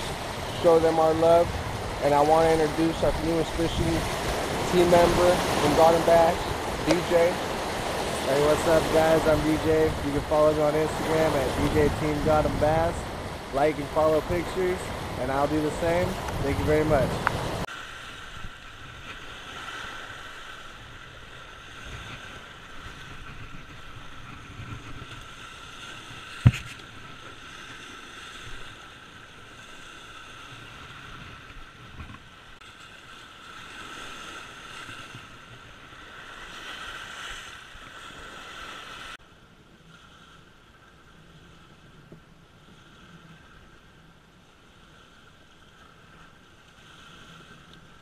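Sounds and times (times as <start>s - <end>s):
wind buffeting microphone: 0.0s - 17.7s
water lapping against rocky shore: 0.0s - 39.2s.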